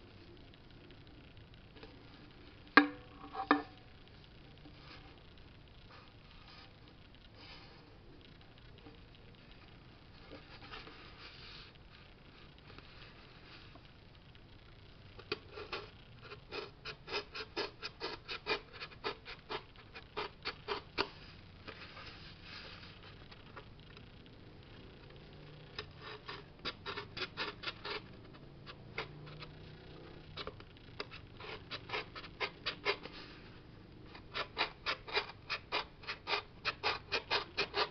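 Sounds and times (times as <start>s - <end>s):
craft knife cutting cardboard: 16.5s - 21.2s, 25.8s - 29.5s, 30.4s - 33.2s, 34.1s - 37.9s.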